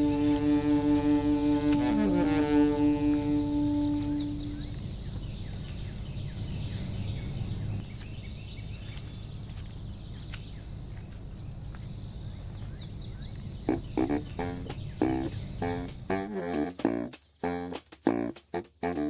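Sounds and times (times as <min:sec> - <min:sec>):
saxophone note: 0:00.0 - 0:04.7, 0:13.7 - 0:19.0
steady low rumble: 0:00.0 - 0:16.4
faint bird chirps: 0:00.0 - 0:19.0.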